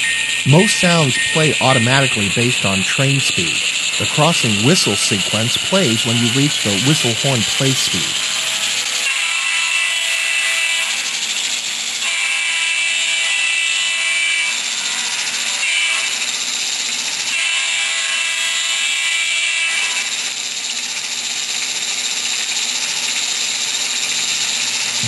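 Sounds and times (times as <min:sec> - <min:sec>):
locomotive whistle blasts: 0:00.0 - 0:08.3
steady hiss: 0:00.2 - 0:08.4.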